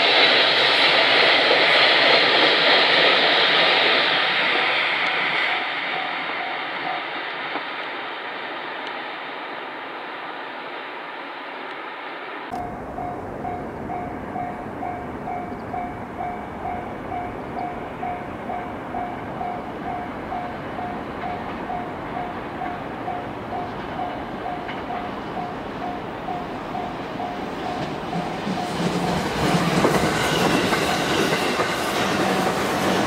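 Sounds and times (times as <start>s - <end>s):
electric train rumbling: 0.0s - 33.0s
level-crossing bell ringing: 5.0s - 7.2s, 12.5s - 29.6s.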